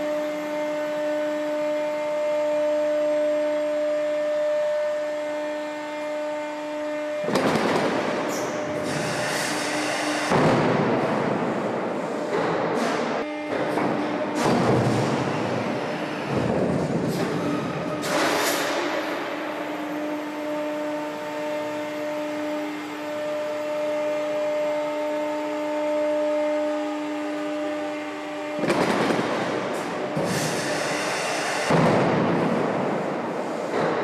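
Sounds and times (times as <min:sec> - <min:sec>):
hydraulic whine: 0:00.0 - 0:34.0
hissing bursts and clatter: 0:07.5 - 0:10.3, 0:30.2 - 0:32.5.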